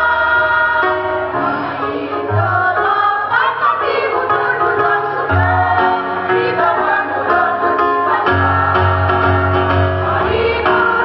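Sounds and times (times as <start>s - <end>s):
women's choir singing: 0.0s - 11.0s
instrumental accompaniment with bass: 5.4s - 11.0s.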